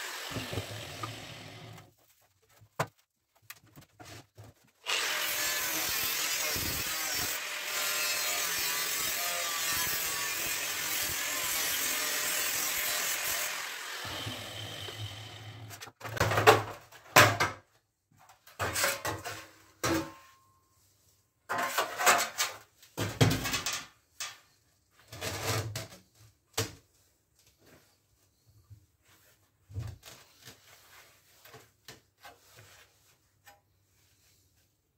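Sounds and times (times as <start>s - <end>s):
power tool cutting metal: 0.0s - 1.8s, 4.8s - 15.7s
metal knocks and scrapes: 21.5s - 24.4s.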